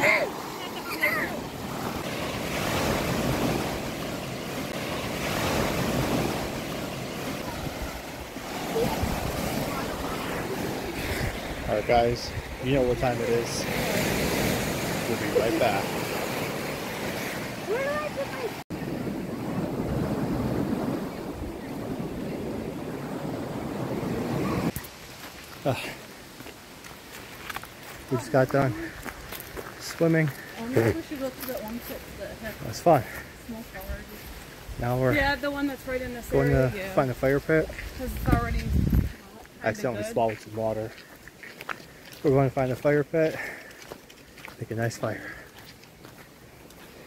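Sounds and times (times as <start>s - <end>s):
small waves breaking on sand: 0.0s - 47.0s
wind rumbling on microphone: 0.1s - 13.0s, 15.8s - 24.8s, 37.6s - 39.5s.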